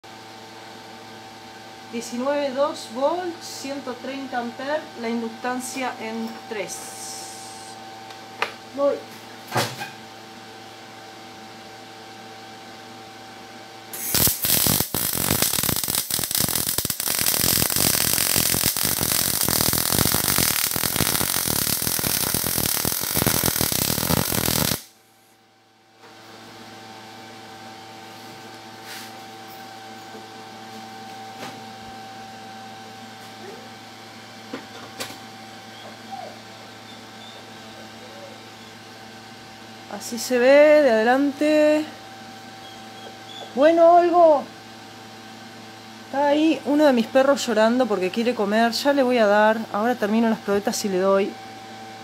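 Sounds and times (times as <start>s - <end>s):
steady hum: 0.1s - 52.0s
welding arc crackling: 13.9s - 25.0s.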